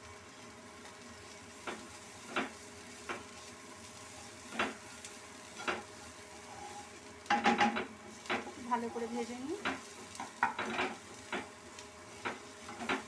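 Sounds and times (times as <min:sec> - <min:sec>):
onion sizzling in oil: 0:00.0 - 0:13.0
wooden spatula scraping pan: 0:05.6 - 0:11.5, 0:12.2 - 0:13.0.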